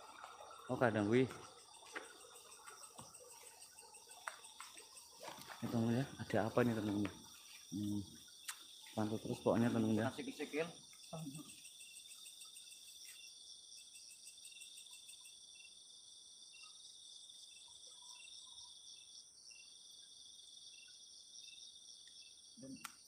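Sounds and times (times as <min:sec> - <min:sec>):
insect short chirps: 0:00.0 - 0:15.8
crickets trilling: 0:00.0 - 0:23.0.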